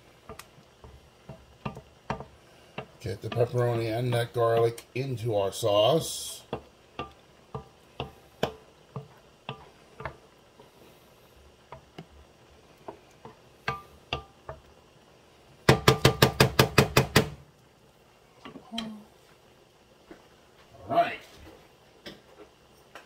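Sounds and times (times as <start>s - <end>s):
stirring thick sauce: 0.0s - 14.7s
wooden spoon knocking on pan: 0.2s - 4.9s, 6.4s - 10.3s, 11.6s - 12.2s, 12.8s - 14.8s, 15.6s - 17.4s.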